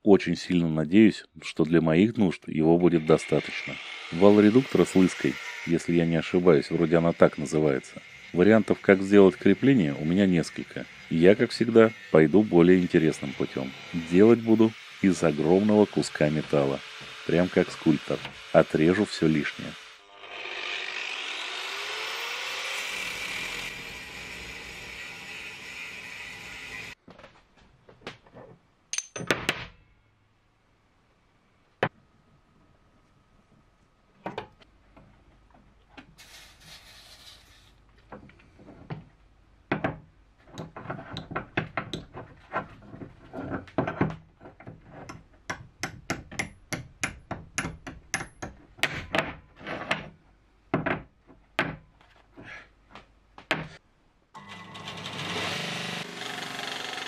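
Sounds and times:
belt grinder motor running: 0:03.0 - 0:27.0, 0:54.4 - 0:57.0
metal knocks and clinks: 0:28.9 - 0:30.0.

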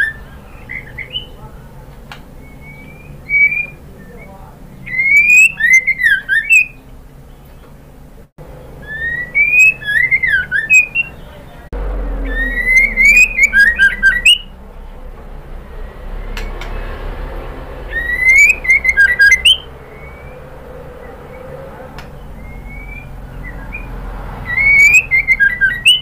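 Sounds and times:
bird whistling call with ticks: 0:04.9 - 0:06.8, 0:08.8 - 0:11.2, 0:12.5 - 0:14.5, 0:17.9 - 0:20.4, 0:24.5 - 0:26.0.

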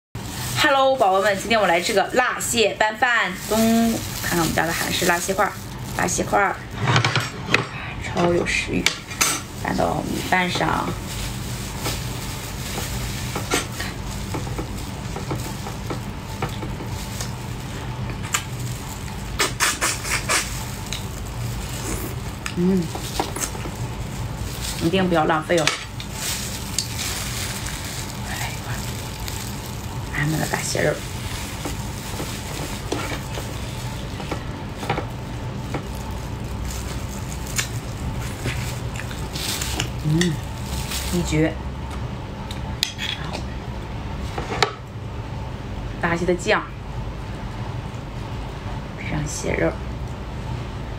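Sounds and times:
steady low hum: 0:00.2 - 0:50.9
wet sticky squeezing: 0:11.0 - 0:25.0, 0:25.9 - 0:41.2
chewing: 0:36.8 - 0:40.3.

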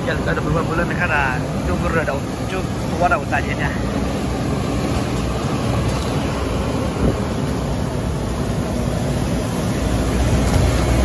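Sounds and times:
road noise: 0:00.0 - 0:11.0
vehicle engine running: 0:00.0 - 0:11.0
wind noise: 0:04.0 - 0:11.0.

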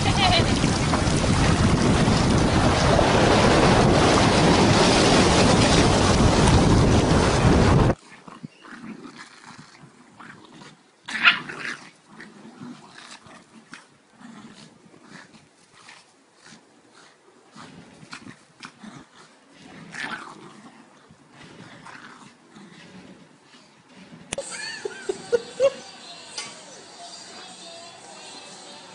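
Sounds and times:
beach surf: 0:00.0 - 0:08.0
wind buffeting microphone: 0:00.0 - 0:08.0
dog grunting: 0:07.9 - 0:26.4.

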